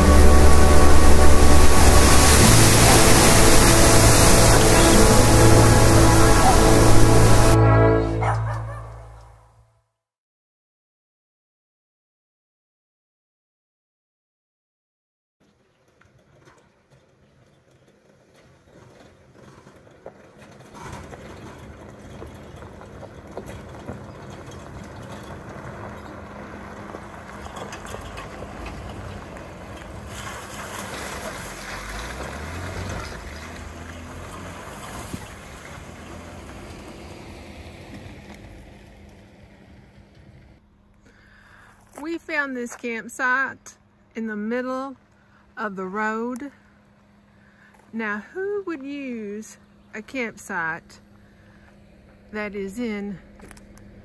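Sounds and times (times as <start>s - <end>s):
vehicle driving on gravel: 0.0s - 7.6s, 15.4s - 54.0s
faint water-like hiss: 1.2s - 7.6s.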